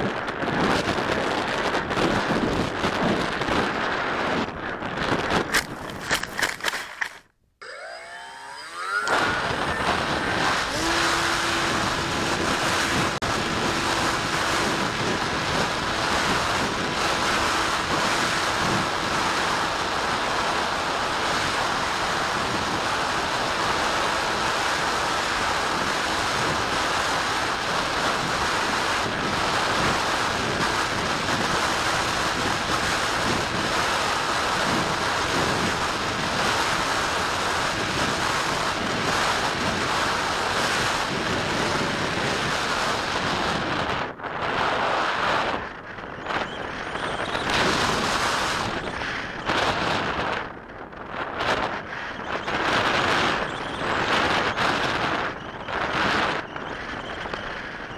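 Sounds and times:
wind rushing over camera: 0.0s - 7.3s, 8.5s - 57.9s
electric motor whining: 7.6s - 41.9s, 46.2s - 49.9s.

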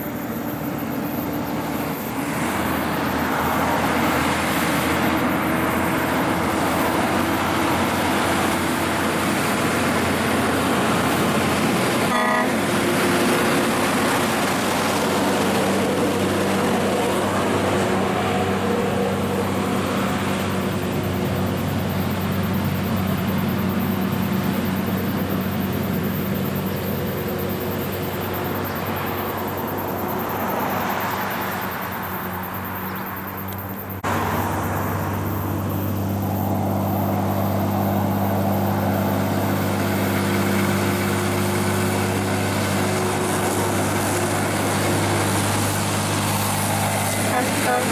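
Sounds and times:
truck diesel engine pulling uphill: 0.0s - 47.9s
truck horn toot: 12.0s - 13.7s, 47.0s - 47.9s.

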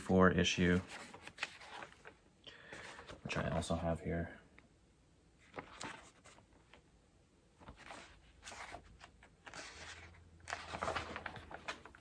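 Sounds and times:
magazine pages rustling: 0.6s - 3.7s, 5.4s - 6.8s, 7.6s - 12.0s.

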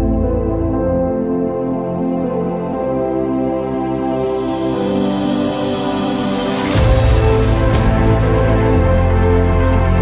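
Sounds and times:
background music chords: 0.0s - 10.0s.

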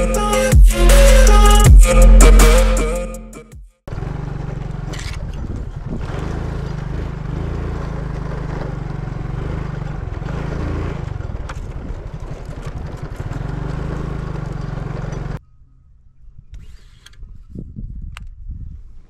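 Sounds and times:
engine running steadily: 3.9s - 15.4s.

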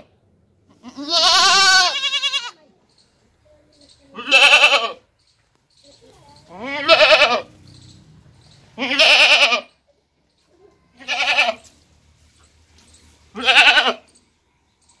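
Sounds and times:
goat bleating: 0.7s - 2.7s, 4.1s - 5.1s, 6.5s - 7.6s, 8.8s - 9.8s, 10.9s - 11.8s, 13.3s - 14.1s.

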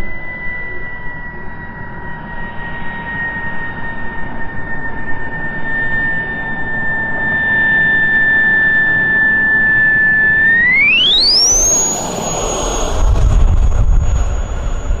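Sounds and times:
model jet turbine whining: 3.4s - 15.0s
low rumble of jet blast: 10.3s - 15.0s.

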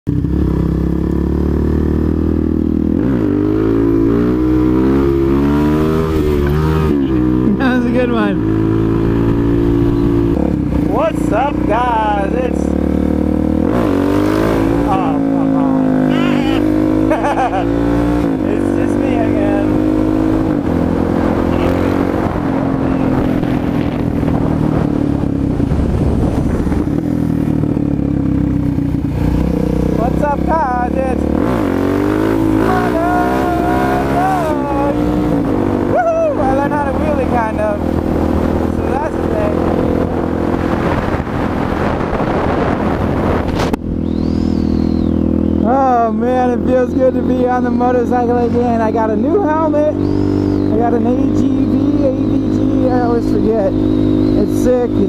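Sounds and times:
motorcycle engine idling and revving: 0.0s - 55.0s
wind rushing over microphone: 2.1s - 17.0s, 17.6s - 55.0s.

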